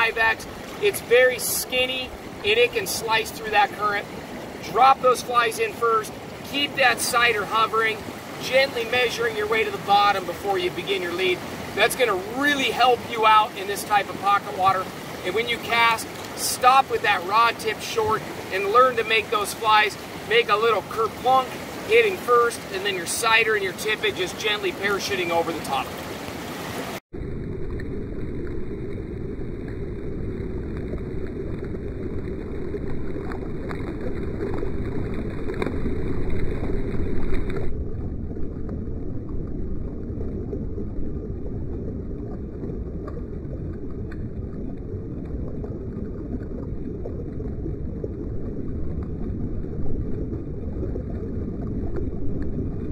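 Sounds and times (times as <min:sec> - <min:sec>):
river water rushing: 0:00.0 - 0:27.0.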